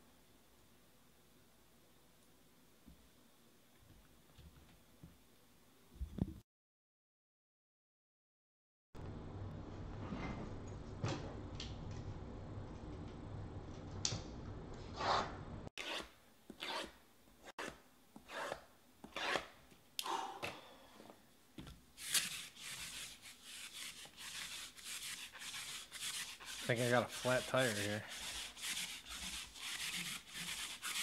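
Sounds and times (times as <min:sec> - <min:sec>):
hands rubbing card boxes: 0:22.0 - 0:31.0
lint roller rolling over cloth: 0:22.0 - 0:31.0.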